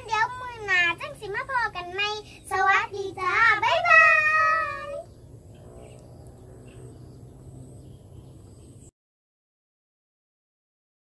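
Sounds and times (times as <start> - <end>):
faint low hum: 0.0 - 8.9
girls singing: 2.5 - 5.0.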